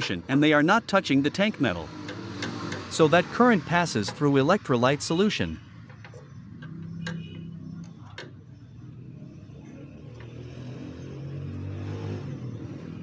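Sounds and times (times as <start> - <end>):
light clicks of metal rods: 2.0 - 2.9, 5.8 - 8.5, 10.0 - 10.4.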